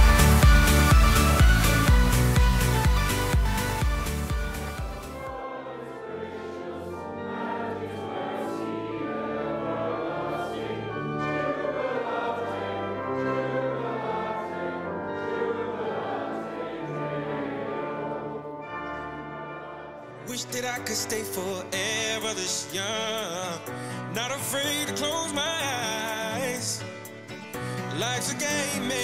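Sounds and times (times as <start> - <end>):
dance music beat: 0.0 - 5.4
slow sustained chords: 0.0 - 20.3
choir singing a hymn: 4.2 - 20.3.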